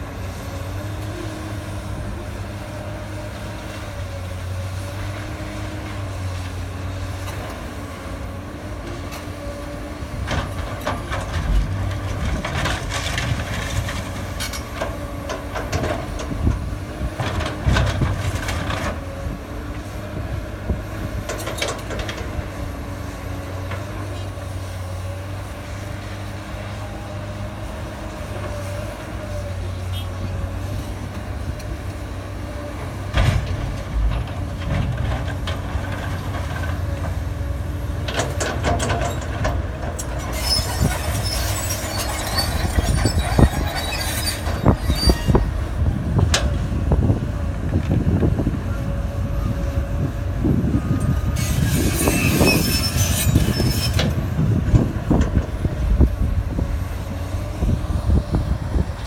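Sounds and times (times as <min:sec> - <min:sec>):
rail cars rumbling: 0:00.0 - 0:59.0
clanks and knocks: 0:38.0 - 0:40.2
steel wheels squealing on rails: 0:40.0 - 0:45.6, 0:51.0 - 0:54.3.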